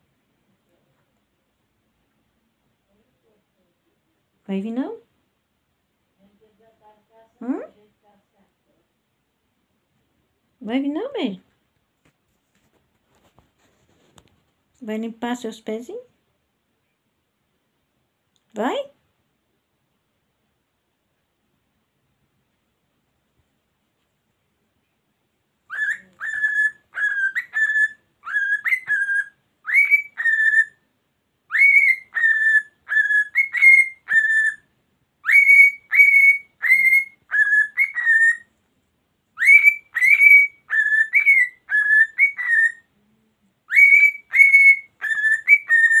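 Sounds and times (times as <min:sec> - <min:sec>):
cockatiel whistling: 0:25.7 - 0:30.8, 0:31.5 - 0:34.6, 0:35.2 - 0:38.5, 0:39.4 - 0:42.9, 0:43.7 - 0:46.0.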